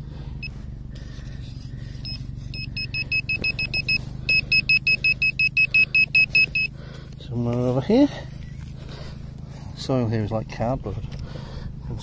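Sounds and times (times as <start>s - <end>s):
pinpointer beeping: 2.0s - 6.8s.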